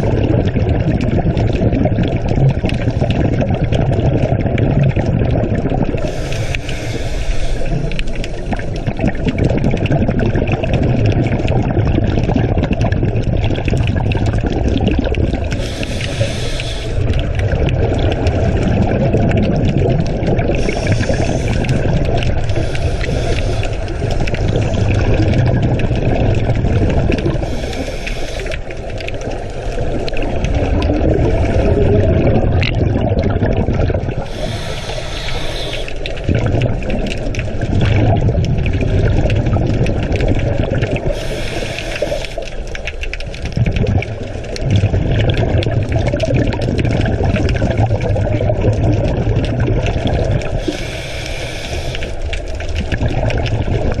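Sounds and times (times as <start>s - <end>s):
sea water rushing: 0.0s - 54.0s
short hissing burst: 15.6s - 17.0s, 34.3s - 36.0s, 41.2s - 42.4s, 50.7s - 52.1s.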